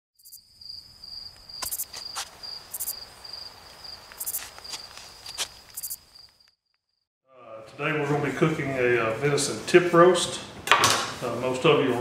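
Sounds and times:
insect buzzing bursts: 0.2 - 6.5
crickets trilling: 0.2 - 7.0.

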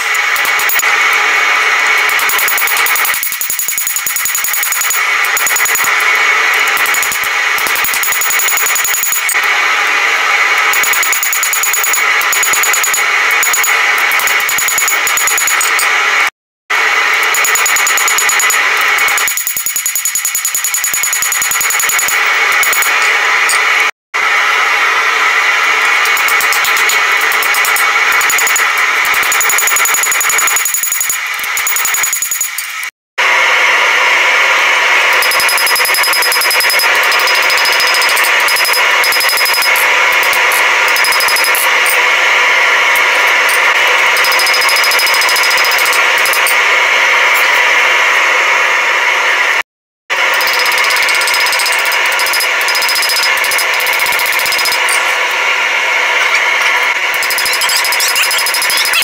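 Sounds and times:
hammer striking steel on anvil: 17.2 - 23.7, 25.9 - 32.9, 35.2 - 42.0, 43.0 - 46.6, 50.3 - 55.3.

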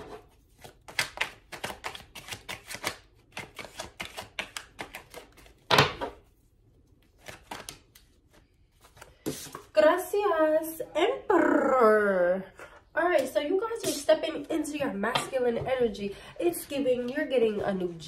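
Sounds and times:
cards shuffled by hand: 0.4 - 6.1, 7.0 - 9.7.

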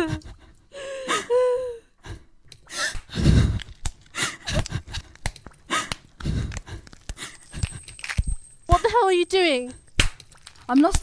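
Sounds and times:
person gasping and whimpering: 0.0 - 7.7
metal chain clanking: 7.3 - 11.0.

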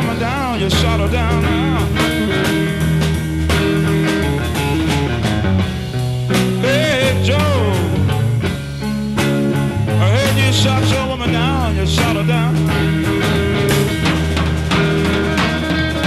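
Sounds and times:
slow rock song: 0.0 - 16.0.

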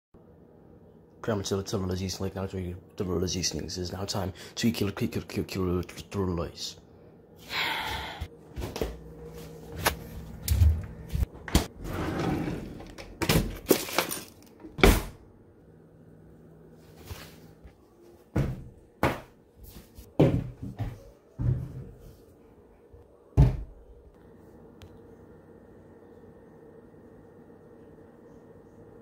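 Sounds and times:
objects thumping and knocking: 20.2 - 22.0, 23.4 - 23.8.

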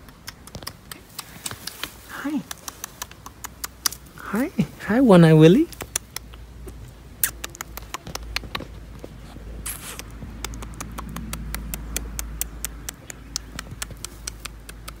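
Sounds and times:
rabbits scrambling with sharp clicks: 0.0 - 4.8, 5.4 - 15.0
rustling in grass: 1.0 - 3.2
short hiss: 9.6 - 10.1.

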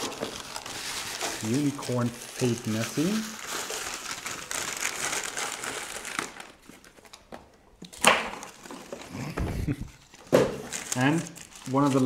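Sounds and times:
paper and plastic crinkling: 0.0 - 12.0.

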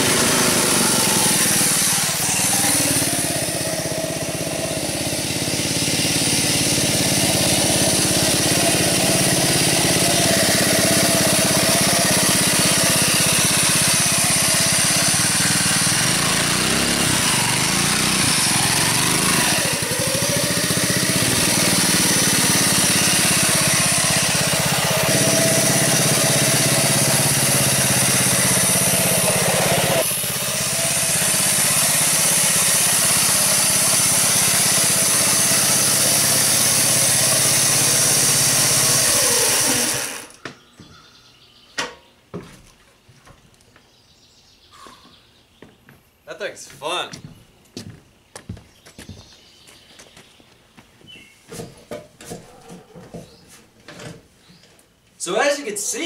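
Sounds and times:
small engine running: 0.0 - 40.4.

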